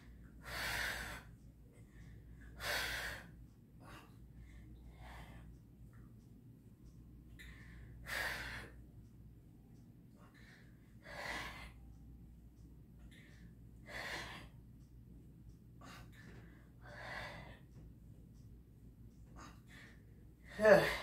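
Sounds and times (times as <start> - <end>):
woman breathing hard: 0.0 - 5.6, 7.4 - 8.8, 10.1 - 12.0, 13.1 - 14.6, 15.8 - 17.8, 19.3 - 21.0.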